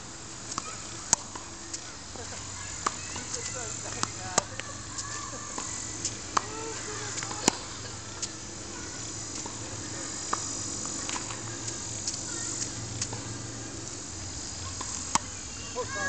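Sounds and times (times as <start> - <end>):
high background hiss: 0.0 - 16.0
racket hitting tennis ball: 2.7 - 8.4.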